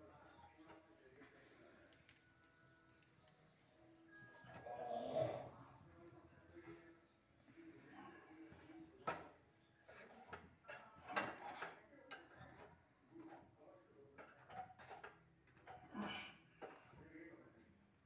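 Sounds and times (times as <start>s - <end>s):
metal tongs clicking on grate: 8.6s - 13.4s, 14.2s - 15.9s.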